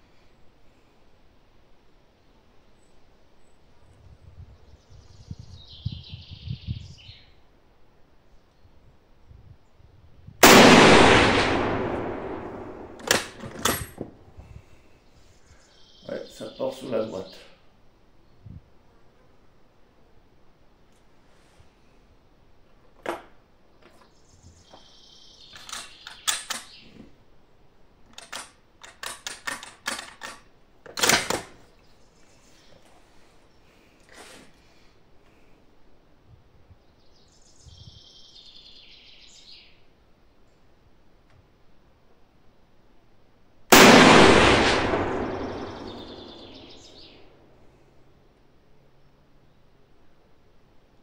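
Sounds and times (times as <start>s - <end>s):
rifle shot: 10.4s - 14.0s, 43.7s - 47.0s
rifle bolt clicking and clacking: 12.9s - 14.0s, 25.5s - 26.8s, 28.1s - 31.6s.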